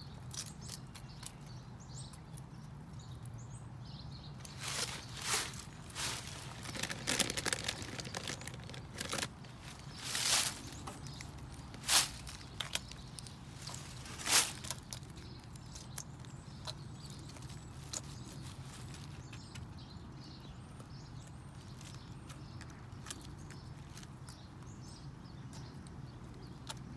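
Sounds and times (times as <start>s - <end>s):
chicken beak tapping dirt: 6.3s - 9.8s.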